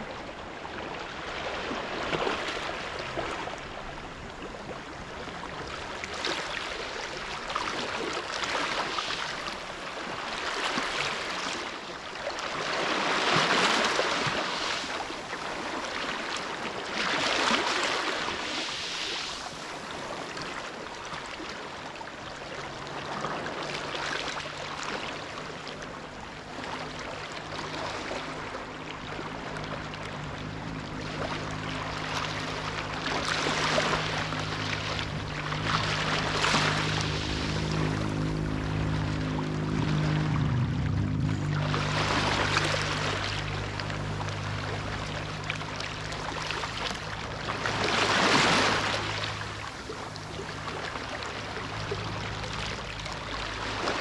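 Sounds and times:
waves breaking on pebble beach: 12.3s - 21.7s, 41.5s - 54.0s
faint low hum: 22.3s - 54.0s.

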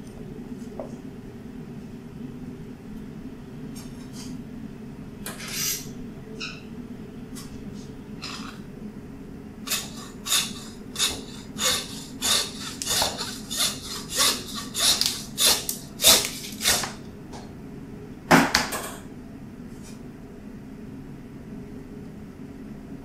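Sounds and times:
hand saw rasping through bone: 9.7s - 17.0s.

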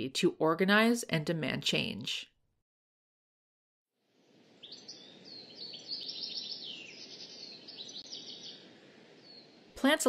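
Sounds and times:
songbirds chirping: 4.1s - 10.0s.

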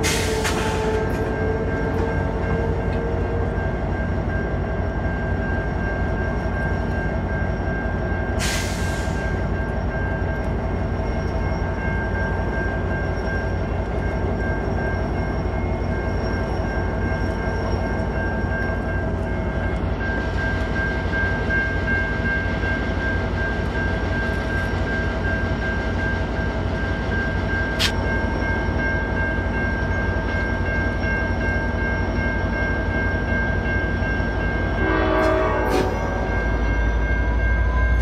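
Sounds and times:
diesel locomotive rumbling past: 0.0s - 38.0s.

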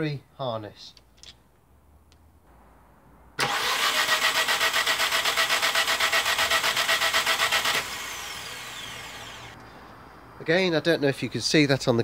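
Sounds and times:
starter motor cranking engine: 3.4s - 9.6s.

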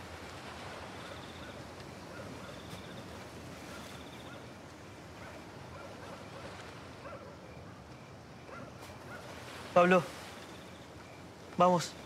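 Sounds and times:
steady outdoor noise: 0.0s - 12.0s
distant animal calls: 1.0s - 4.5s, 8.4s - 11.0s.

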